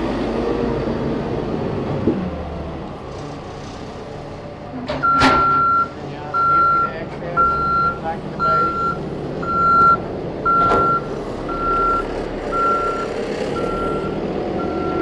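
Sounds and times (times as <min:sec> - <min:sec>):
diesel engine running: 0:00.0 - 0:15.0
reversing alarm beeping: 0:05.0 - 0:15.0.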